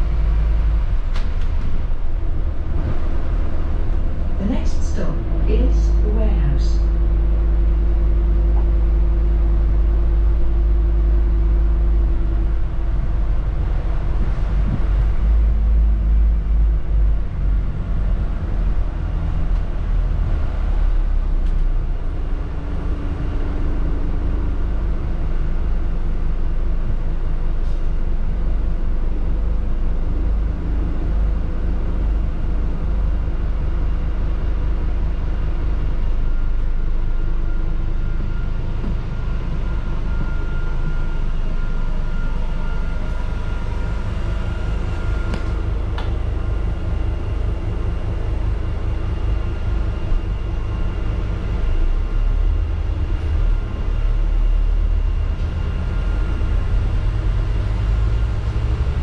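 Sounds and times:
bus engine and road rumble: 0:00.0 - 0:59.0.

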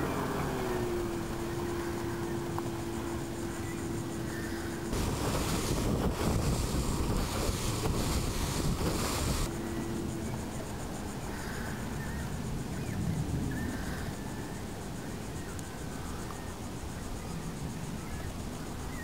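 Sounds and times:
wake churning: 0:00.0 - 0:09.5
outboard motor boat at speed: 0:00.0 - 0:19.0
wind buffeting microphone: 0:00.0 - 0:19.0.

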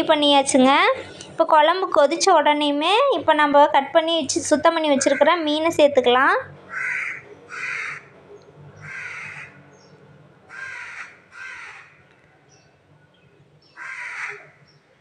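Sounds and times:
crow cawing: 0:06.7 - 0:08.1, 0:08.8 - 0:09.6, 0:10.5 - 0:12.1, 0:13.7 - 0:14.6.

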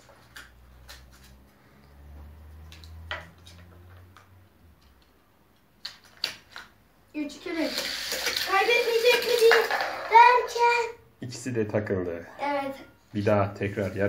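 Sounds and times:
toy cars clicking on wooden ramp: 0:07.4 - 0:10.8.

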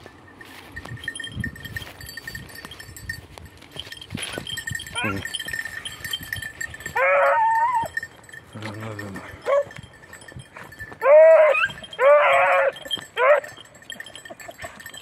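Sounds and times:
hounds baying: 0:04.2 - 0:08.2, 0:09.2 - 0:09.8, 0:10.4 - 0:15.0.

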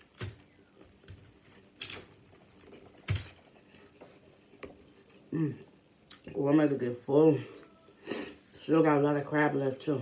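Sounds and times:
sharp clicks and cracks: 0:00.0 - 0:03.9.

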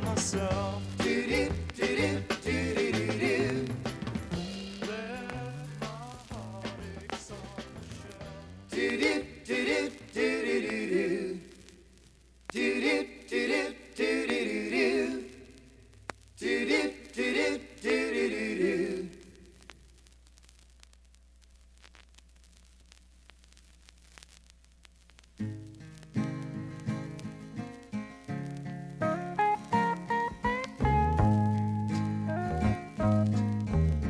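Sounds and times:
group singing in harmony: 0:00.0 - 0:04.0, 0:06.5 - 0:11.5, 0:12.5 - 0:15.5, 0:16.4 - 0:19.3
vinyl crackle clicks: 0:00.0 - 0:34.0
vinyl surface noise: 0:00.0 - 0:34.0.

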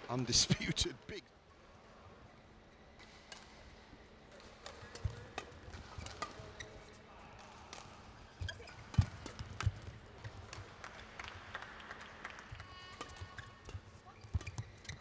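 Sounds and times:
racket hitting shuttlecock: 0:04.3 - 0:06.6, 0:07.5 - 0:10.6, 0:13.0 - 0:15.0.

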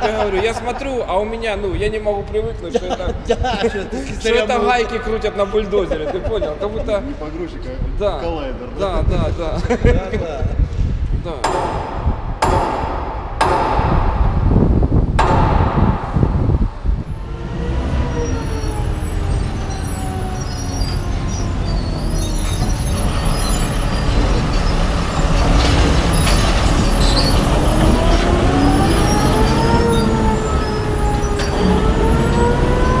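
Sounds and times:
haul truck rumble with whine: 0:14.8 - 0:33.0.

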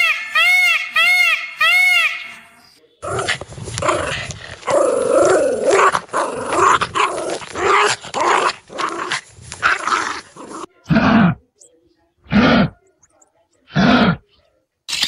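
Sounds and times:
dogs growling: 0:03.0 - 0:11.4, 0:13.7 - 0:14.2.

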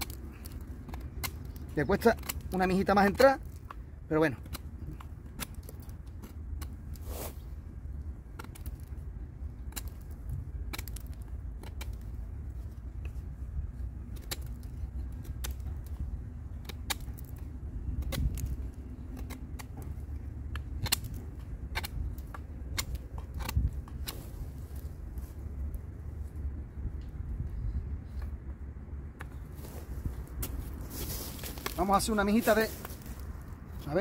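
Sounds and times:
knife shaving wooden stick: 0:00.0 - 0:25.8.

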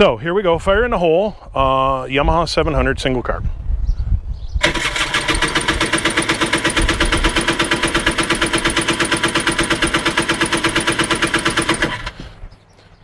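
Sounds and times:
engine cranking chugging: 0:04.6 - 0:12.4.

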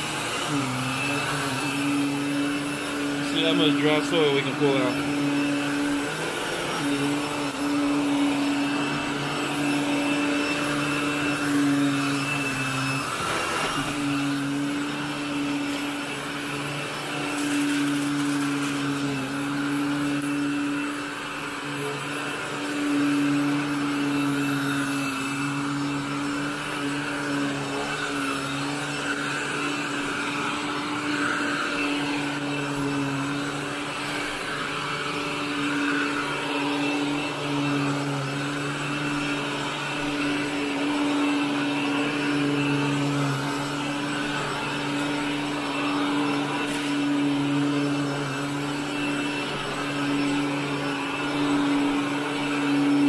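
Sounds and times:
vacuum cleaner running on carpet: 0:00.0 - 0:53.0.

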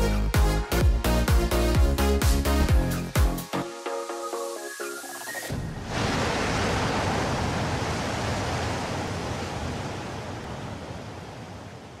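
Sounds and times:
ocean surf rushing: 0:03.9 - 0:12.0.

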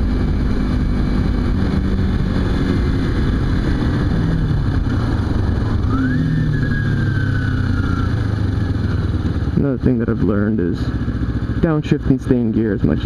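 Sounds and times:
wind rush: 0:00.0 - 0:09.4
motorcycle engine running: 0:00.0 - 0:13.0.

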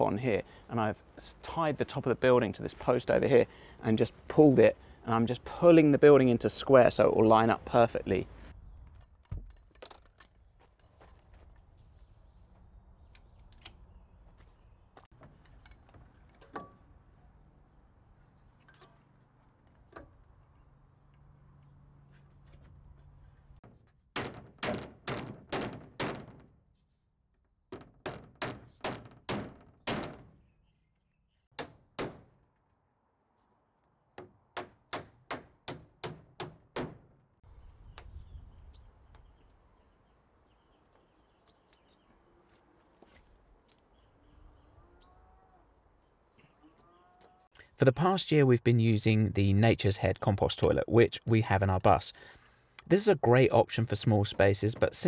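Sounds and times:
hammer driving nails into wood: 0:23.6 - 0:26.5, 0:27.7 - 0:30.3, 0:34.2 - 0:37.0.

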